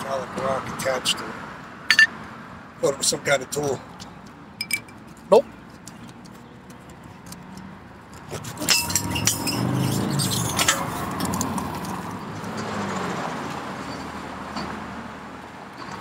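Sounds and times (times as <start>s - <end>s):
sharp metallic clinks: 1.9s - 2.2s, 4.6s - 5.0s, 8.6s - 11.5s
vehicle rumble on bridge: 7.4s - 16.0s.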